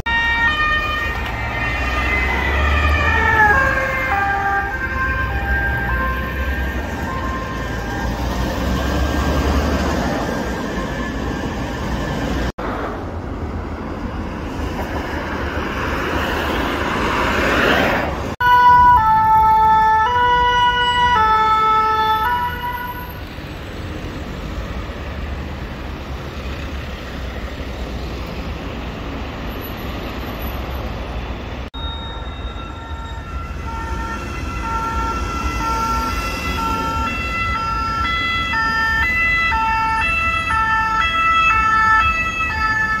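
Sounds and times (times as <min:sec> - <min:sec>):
ambulance siren short alternating tones: 0:00.0 - 0:12.1, 0:18.4 - 0:23.3, 0:31.8 - 0:43.0
two-tone siren alternating pitches: 0:00.0 - 0:12.3, 0:18.4 - 0:23.2, 0:31.8 - 0:43.0
road traffic: 0:00.0 - 0:43.0.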